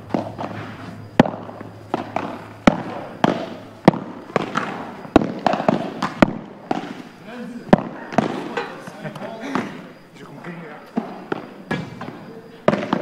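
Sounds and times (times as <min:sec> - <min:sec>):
ball bouncing: 0:00.0 - 0:07.1, 0:07.7 - 0:08.7, 0:10.9 - 0:13.0
padel ball racket strikes: 0:00.1 - 0:07.0, 0:12.7 - 0:13.0.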